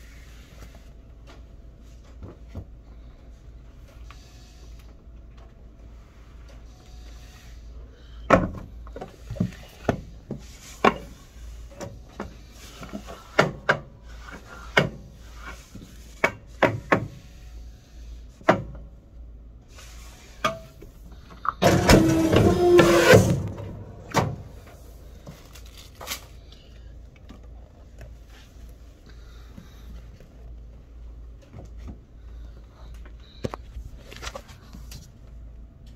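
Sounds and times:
low steady hum: 0.0s - 35.9s
paper cutter cut cycle: 21.6s - 23.8s.

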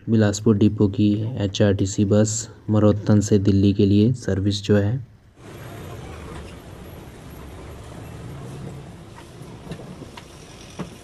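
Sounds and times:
bus cabin low rumble: 5.4s - 11.0s.

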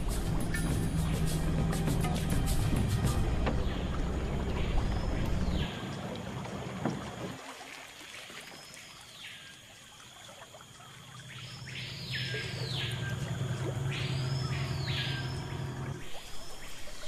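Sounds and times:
outboard motor running: 0.0s - 7.4s, 10.9s - 16.9s
jungle ambience: 0.0s - 17.0s.

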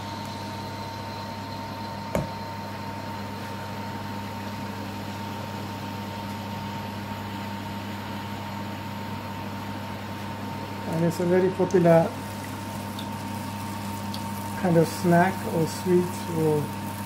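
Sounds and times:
batter sizzling in hot oil: 11.7s - 17.0s.

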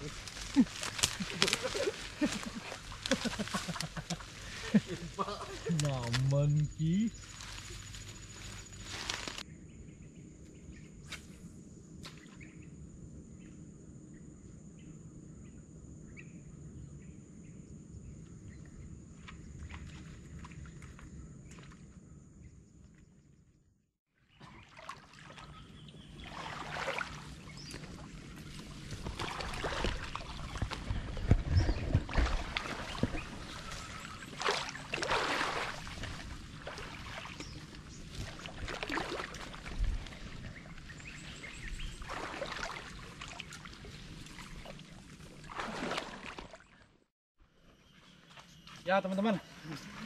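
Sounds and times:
legs sloshing through water: 0.0s - 6.2s, 24.3s - 46.9s
bodies brushing through reeds: 0.0s - 9.4s, 26.2s - 46.5s
birds chirping: 0.0s - 11.0s, 24.3s - 39.2s, 40.1s - 44.8s.

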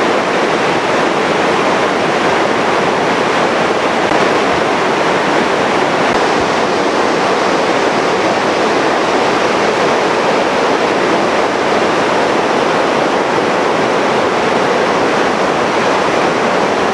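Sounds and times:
water rushing over weir: 0.0s - 16.9s.

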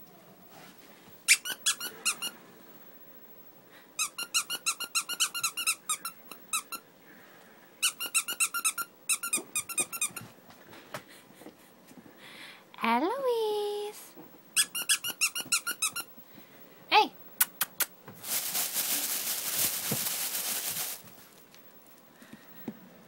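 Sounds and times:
squeaky dog toy squeaking: 1.3s - 2.3s, 4.0s - 6.8s, 7.8s - 10.2s, 14.6s - 16.1s.

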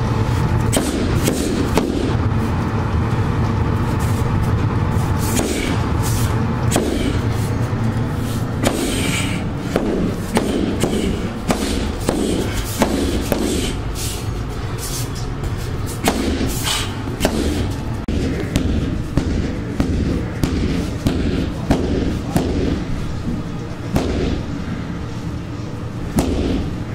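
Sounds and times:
steady low rumble: 0.0s - 26.9s
punching bag thuds: 9.7s - 13.7s, 16.0s - 16.6s, 26.2s - 26.7s.

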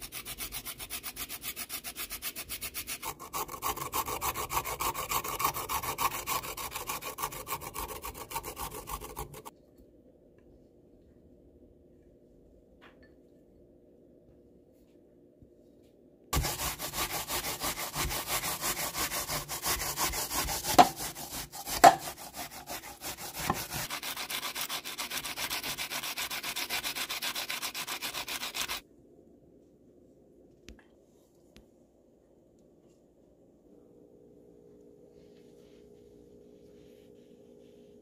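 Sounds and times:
hand grater scraping fruit: 0.0s - 9.5s, 16.4s - 28.8s.

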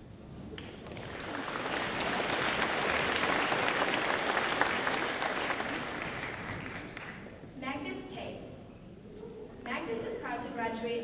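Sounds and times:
audience applauding: 0.6s - 7.3s.

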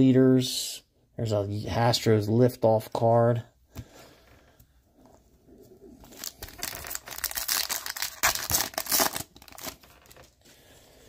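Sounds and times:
foil wrapper tearing and crinkling: 6.0s - 10.4s.

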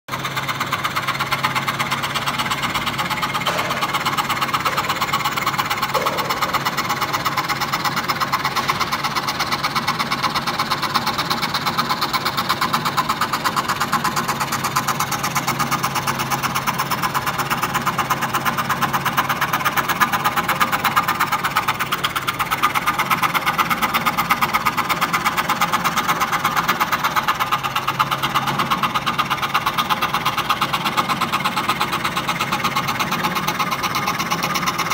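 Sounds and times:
scroll saw cutting wood: 1.6s - 9.3s.

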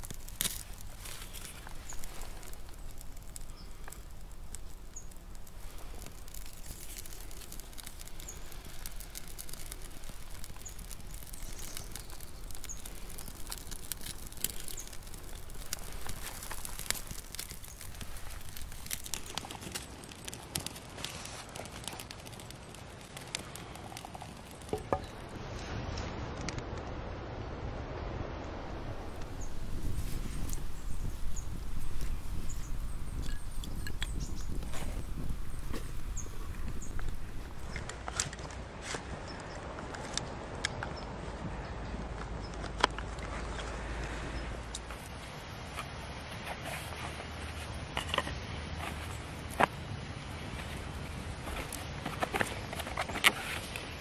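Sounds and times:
kindling and bark rustling: 0.0s - 24.8s
wood fire crackling: 0.0s - 27.0s, 28.4s - 41.3s, 42.1s - 54.0s.

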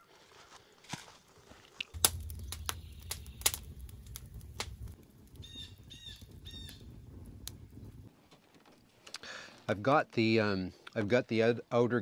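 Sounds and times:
campfire crackling and popping: 1.9s - 8.4s
bird chirping: 2.0s - 6.9s
low rumble: 2.0s - 8.1s.

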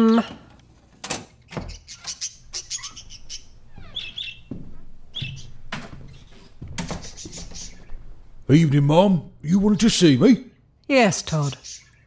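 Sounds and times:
parakeet chirping: 1.3s - 8.3s, 11.2s - 12.0s
soft knocks: 3.8s - 8.2s.

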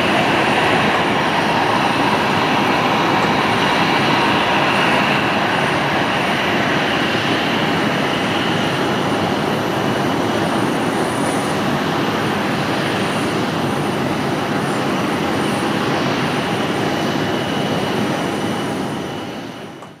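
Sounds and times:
jet engines taxiing: 0.0s - 20.0s.

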